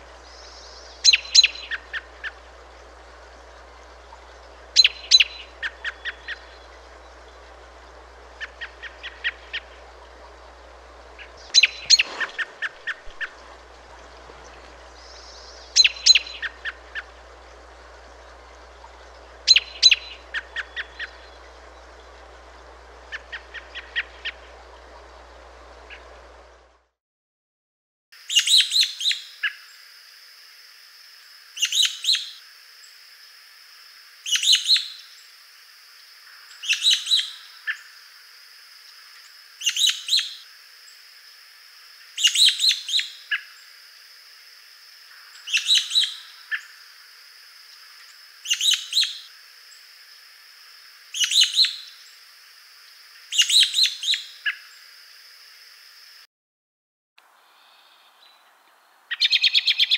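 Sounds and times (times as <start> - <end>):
robin high thin calls: 0.2 - 2.4, 11.2 - 13.7, 14.3 - 17.2, 19.5 - 21.3, 45.3 - 46.7, 48.4 - 49.3, 51.1 - 51.9, 59.1 - 59.9.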